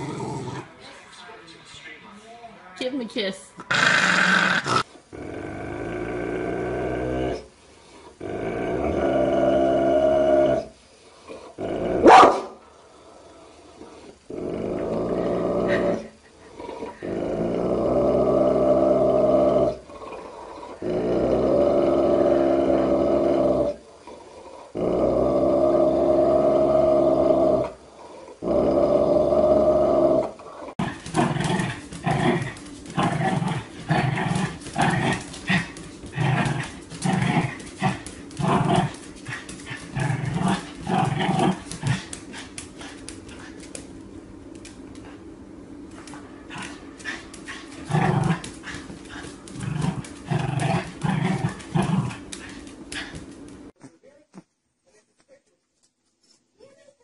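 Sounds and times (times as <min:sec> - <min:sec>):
large dog growling: 0:00.0 - 0:00.8, 0:03.6 - 0:12.1, 0:13.2 - 0:43.7, 0:46.0 - 0:53.7
small dog barking: 0:12.0 - 0:12.6.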